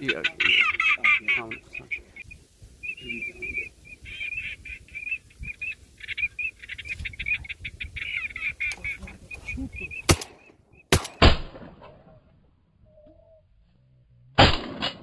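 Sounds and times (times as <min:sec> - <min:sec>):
ducks calling: 0:00.0 - 0:11.0
shotgun shots: 0:10.1 - 0:11.9, 0:14.4 - 0:15.0.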